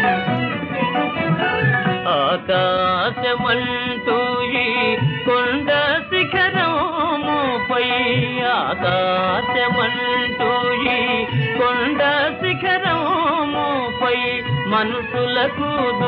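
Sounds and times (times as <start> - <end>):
ornamented gliding melody: 0.0 - 14.4.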